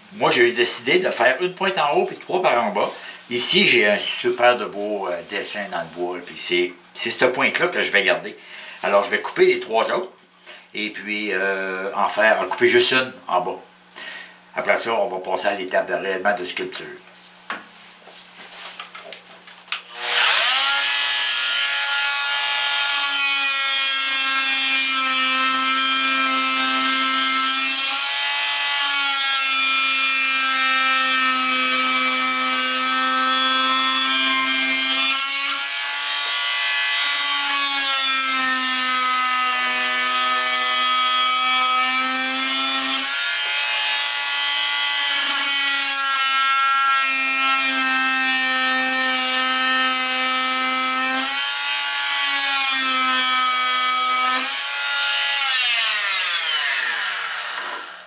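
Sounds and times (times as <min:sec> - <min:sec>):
oscillating multi-tool cutting wood: 0:19.8 - 0:58.0.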